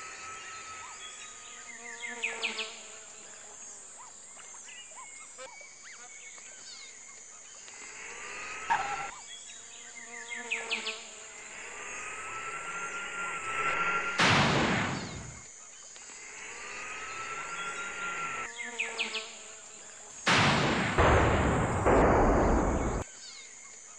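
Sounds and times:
insect-like buzzing chirps: 0.0s - 23.9s
high-pitched hiss: 10.5s - 23.0s
rising whine: 11.4s - 15.5s, 16.3s - 18.5s.

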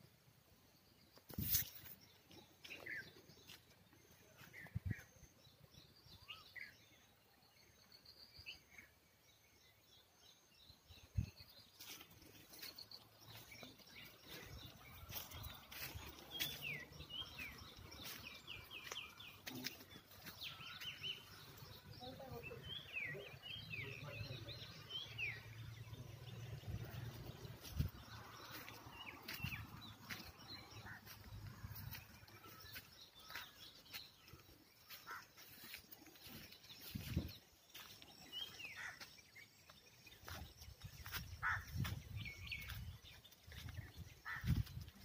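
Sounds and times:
birds chirping and calling: 10.8s - 45.0s.

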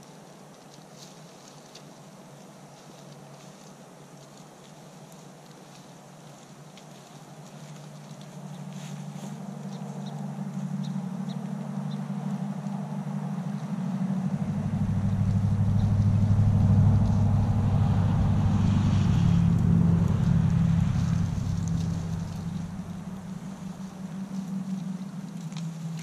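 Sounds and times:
vehicle engine humming: 7.3s - 26.0s.

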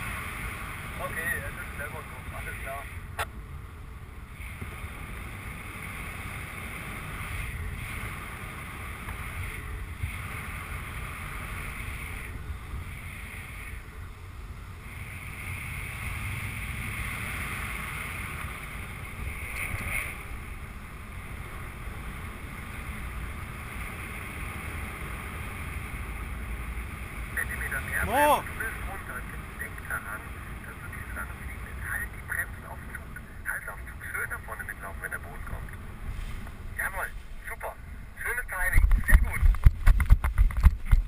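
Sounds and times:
wind rushing over microphone: 35.4s - 41.0s.

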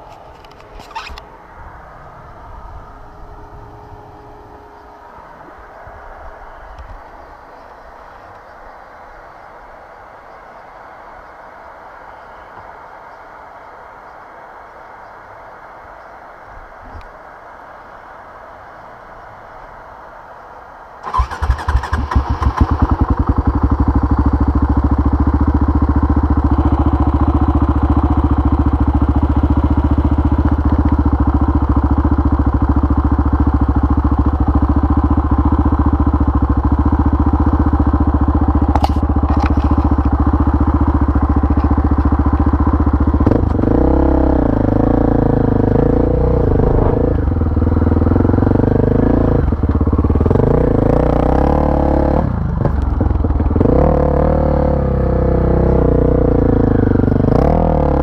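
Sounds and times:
quad engine starting and idling: 21.0s - 57.8s
quad engine revving: 21.1s - 58.0s.

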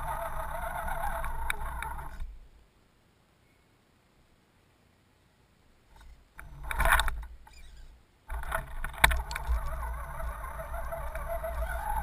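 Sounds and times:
toy car motor whining: 0.0s - 2.4s, 6.0s - 12.0s.

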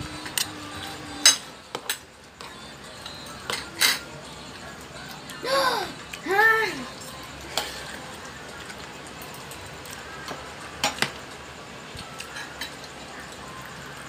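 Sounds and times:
spoons and dishes clinking: 1.2s - 4.2s, 12.2s - 13.0s.

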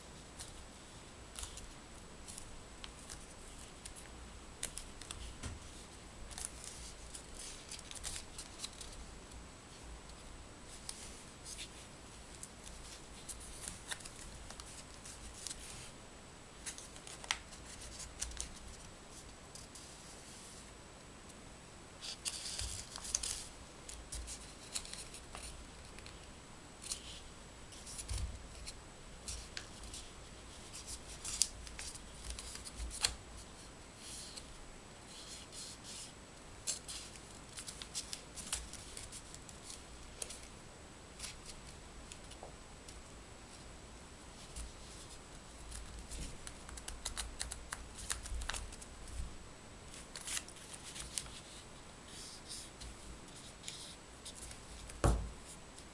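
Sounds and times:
paper crinkling and creasing: 0.4s - 9.1s, 9.7s - 15.9s, 16.6s - 20.4s, 22.0s - 34.5s, 35.1s - 40.5s, 41.2s - 43.6s, 44.4s - 49.2s, 49.9s - 55.6s
soft thumps on table: 55.0s - 55.3s.

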